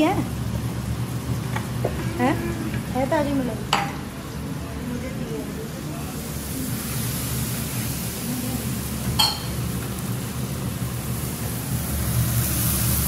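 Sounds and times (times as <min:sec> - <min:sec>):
spices sizzling in oil: 0:05.2 - 0:13.0.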